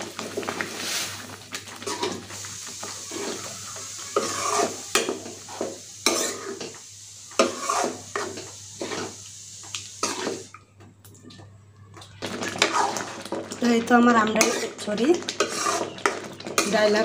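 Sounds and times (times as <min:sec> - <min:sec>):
spatula scraping thick mash: 0:04.1 - 0:06.7, 0:07.4 - 0:09.2, 0:12.5 - 0:13.2, 0:14.3 - 0:17.0.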